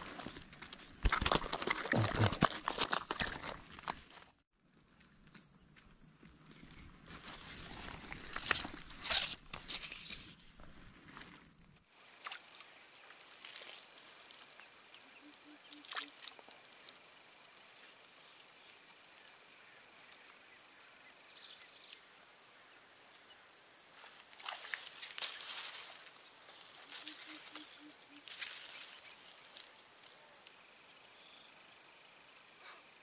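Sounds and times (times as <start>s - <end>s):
insects chorus: 0.0s - 33.0s.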